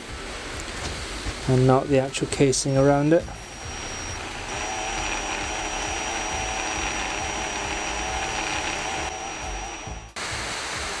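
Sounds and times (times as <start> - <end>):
electric drill whining: 2.6 - 10.7.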